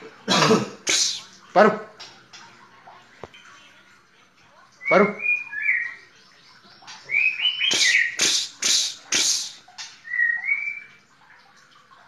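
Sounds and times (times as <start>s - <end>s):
bird singing whistled glides: 4.8s - 6.1s, 7.0s - 8.4s, 10.0s - 11.0s
harsh bird notes: 7.1s - 10.9s.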